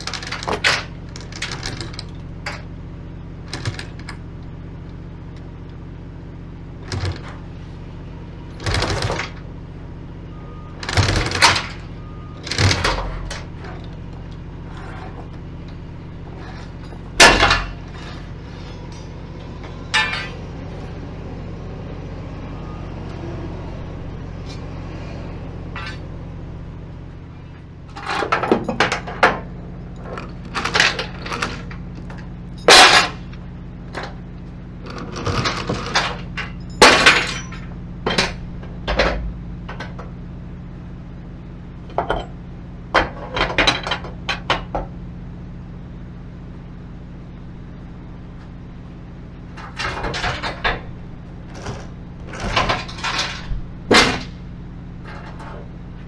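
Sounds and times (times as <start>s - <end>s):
steady low hum: 0.0s - 56.0s
steel chains clanking: 16.2s - 20.4s.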